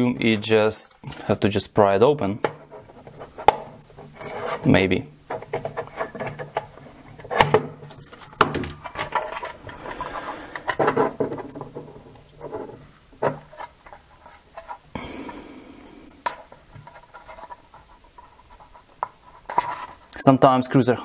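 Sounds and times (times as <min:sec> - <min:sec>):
hands rubbing plastic housing: 0:02.4 - 0:15.4, 0:16.0 - 0:20.1
knife blade scraping plastic: 0:02.5 - 0:14.8.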